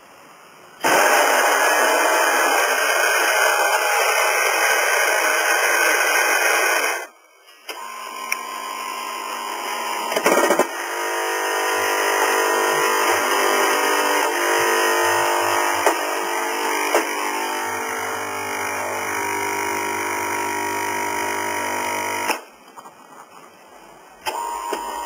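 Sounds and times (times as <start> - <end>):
steady buzzing hum: 0.0 - 22.5
motor running: 7.7 - 22.3
coffee grinder grinding: 9.6 - 22.3.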